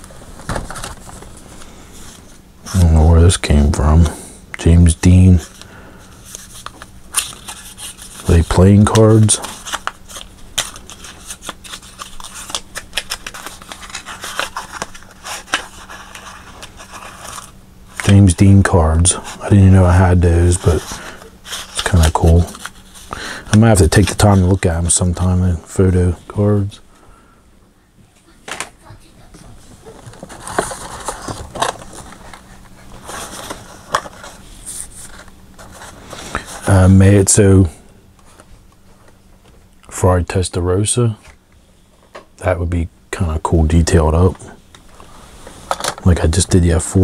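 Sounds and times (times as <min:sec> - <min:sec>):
card scraping and rubbing: 0:05.0 - 0:25.3
packaging rustling: 0:05.4 - 0:18.2, 0:29.8 - 0:36.5
packages clacking together: 0:30.0 - 0:32.4.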